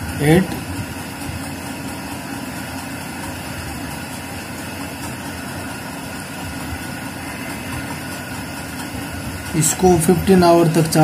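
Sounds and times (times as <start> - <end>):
low background hum and hiss: 5.3 - 11.0.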